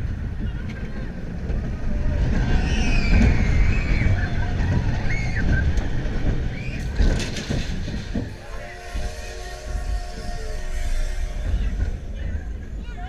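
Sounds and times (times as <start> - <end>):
roller coaster train rumbling: 0.0 - 13.0
wavering high squeal: 2.4 - 5.7, 8.3 - 12.8.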